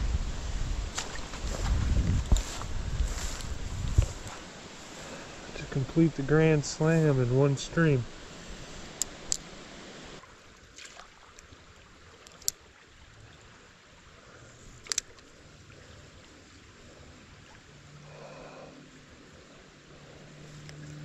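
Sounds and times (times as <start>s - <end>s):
creek flowing: 0.0s - 21.0s
fishing reel clicks: 12.2s - 12.6s, 14.8s - 15.3s.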